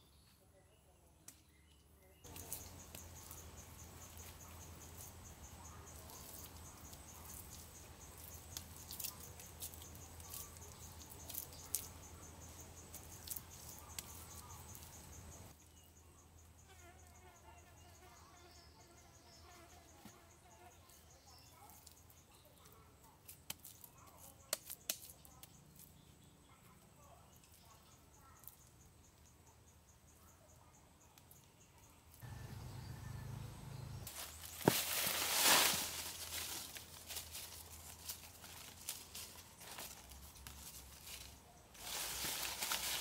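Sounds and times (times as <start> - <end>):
insects chirring: 2.3 - 17.9.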